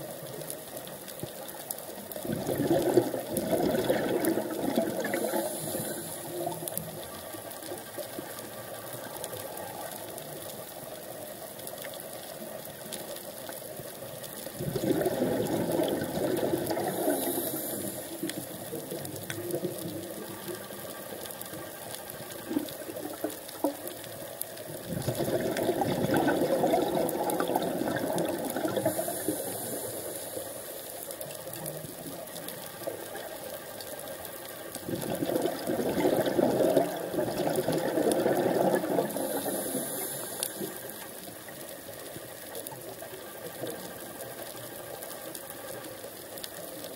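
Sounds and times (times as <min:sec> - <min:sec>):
faint clicks: 0:00.0 - 0:46.9
underwater wash: 0:00.0 - 0:46.9
gurgling exhaled bubbles: 0:02.1 - 0:07.9, 0:14.4 - 0:30.6, 0:34.7 - 0:41.6
regulator inhale hiss: 0:05.1 - 0:06.8, 0:16.6 - 0:18.7, 0:28.7 - 0:31.1, 0:39.0 - 0:41.2.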